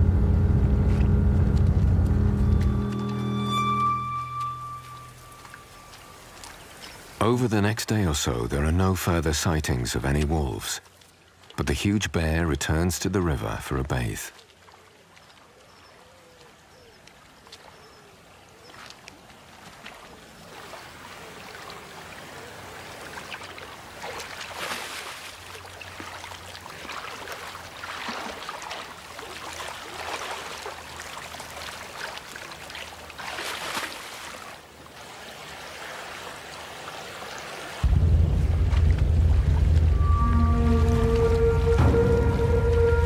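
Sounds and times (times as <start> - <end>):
running river water: 0.0 - 43.0
animal splashing in water: 17.0 - 43.0.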